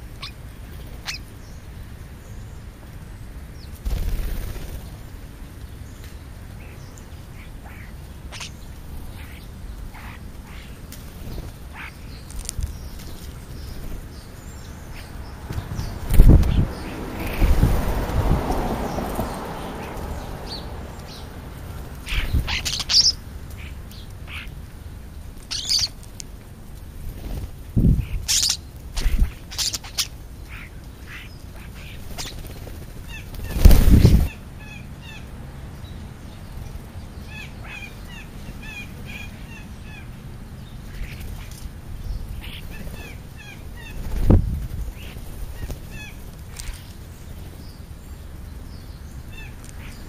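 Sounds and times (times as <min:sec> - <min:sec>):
birds chirping: 0:00.0 - 0:50.0
bird wings flapping: 0:03.8 - 0:05.2, 0:10.8 - 0:14.2, 0:27.0 - 0:27.9, 0:31.8 - 0:34.3, 0:42.6 - 0:47.6.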